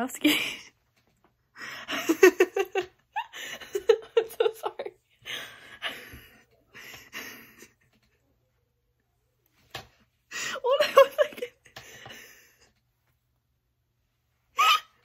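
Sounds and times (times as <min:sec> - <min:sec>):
girl laughing: 0:01.9 - 0:05.0, 0:10.5 - 0:11.7, 0:14.6 - 0:15.0.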